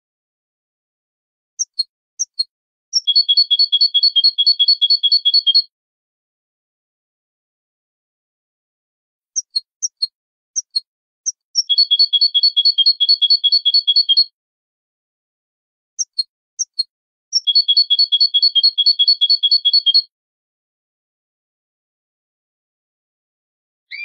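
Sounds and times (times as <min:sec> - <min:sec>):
goldfinch singing: 0:01.6 - 0:05.6, 0:09.4 - 0:14.3, 0:16.0 - 0:20.1.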